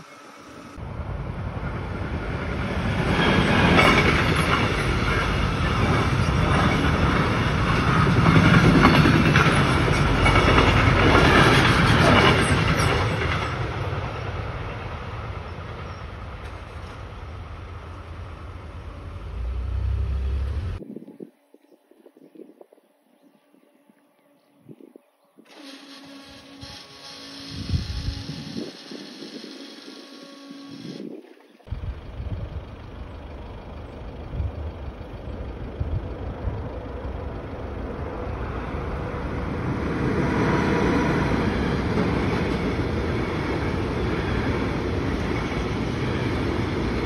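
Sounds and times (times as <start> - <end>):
train wheels clattering over rails: 2.2 - 14.0
low rumble: 31.7 - 39.0.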